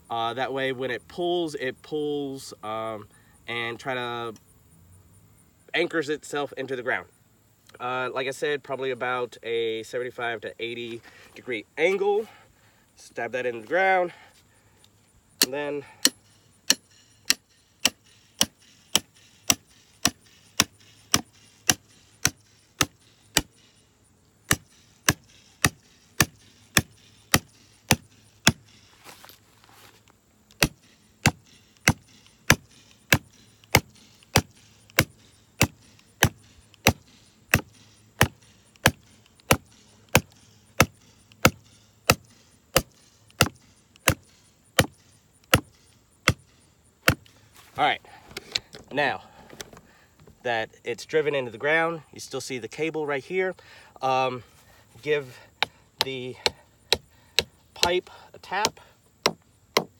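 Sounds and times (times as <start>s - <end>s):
sledgehammer striking steel pipe: 15.4s - 23.7s, 30.6s - 46.4s.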